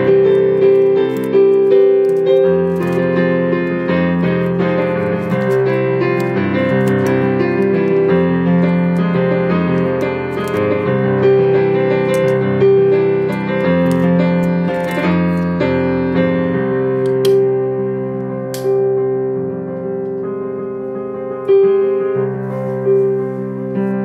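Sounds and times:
slow piano piece: 0.0 - 24.0.

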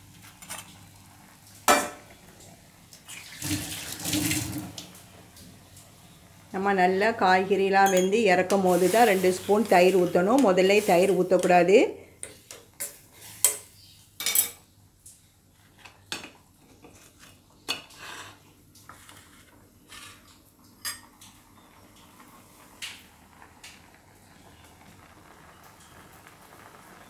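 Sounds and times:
dishes clinking: 7.8 - 8.2, 20.8 - 21.3
metal spoon clinking on pot: 7.8 - 8.2.

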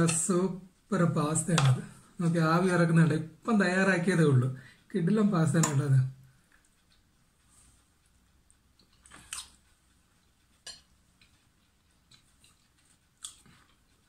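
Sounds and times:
person chewing: 5.6 - 14.0.

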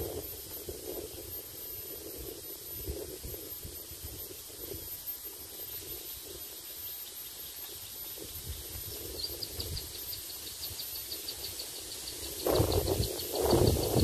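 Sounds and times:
wind rumble on microphone: 0.0 - 6.7, 7.8 - 14.0
steady hiss: 0.0 - 14.0.

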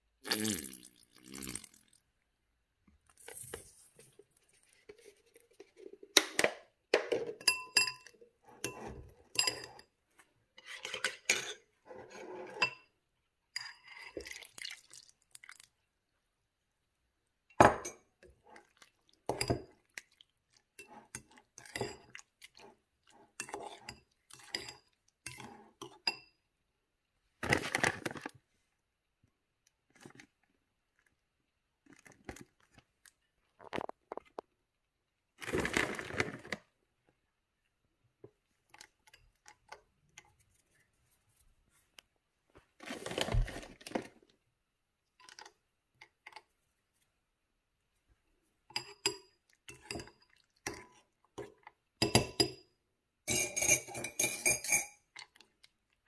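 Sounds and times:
spoons clinking on ceramic: 7.0 - 10.0, 19.3 - 19.7, 20.8 - 22.2, 23.4 - 26.4, 48.7 - 52.7, 53.3 - 55.1.

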